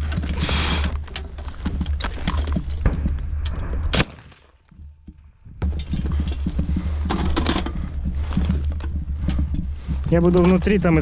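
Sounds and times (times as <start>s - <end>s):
footsteps: 0.0s - 3.9s, 4.5s - 11.0s
low rumble of wind: 0.0s - 11.0s
sharp crack: 3.3s - 4.7s
gear clatter: 5.6s - 11.0s.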